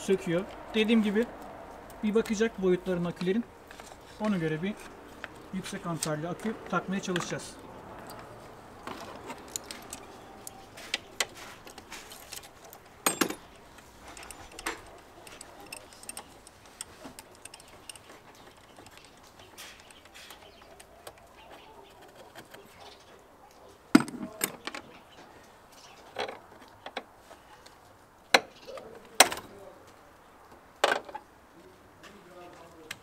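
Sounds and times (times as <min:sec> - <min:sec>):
metal clanks: 0:12.3 - 0:18.1.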